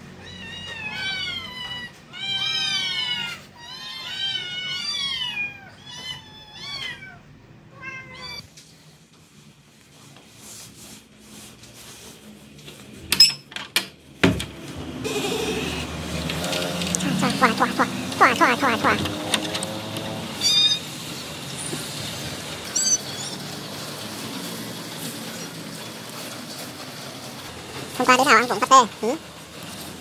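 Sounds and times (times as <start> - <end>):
kittens meowing: 22.7 - 23.4.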